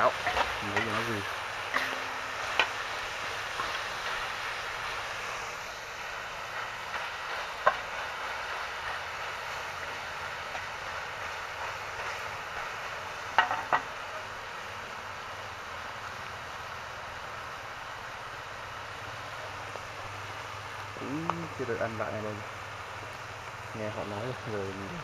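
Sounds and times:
meat sizzling in a wok: 0:00.0 - 0:25.0
spatula knocking on wok: 0:13.4 - 0:13.9.

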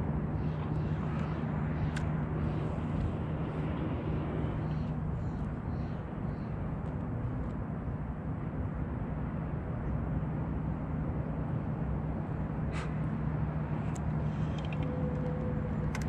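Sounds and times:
electric trolling motor humming: 0:13.6 - 0:16.0.

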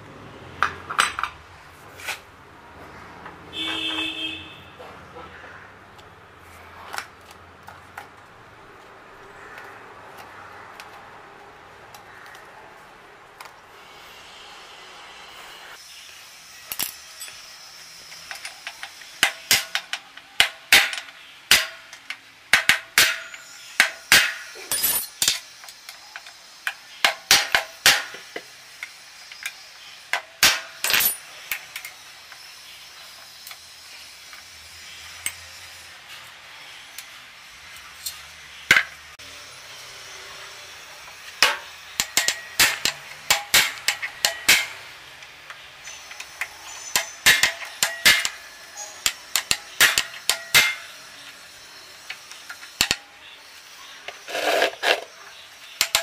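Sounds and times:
metal tools knocking on metal: 0:00.6 - 0:01.4.

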